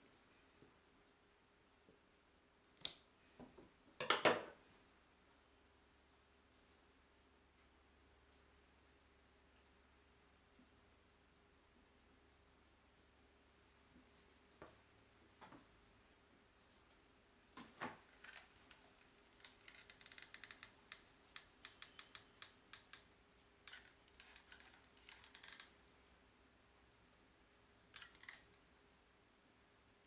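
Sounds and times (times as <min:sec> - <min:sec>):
faint clicking and crackling: 0:00.0 - 0:30.0.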